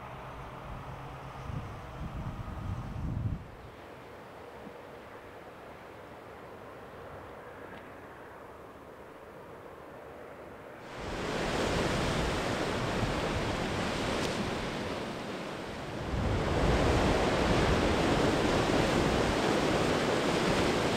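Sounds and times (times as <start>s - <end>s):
waves breaking on rocky shore: 10.9s - 20.9s.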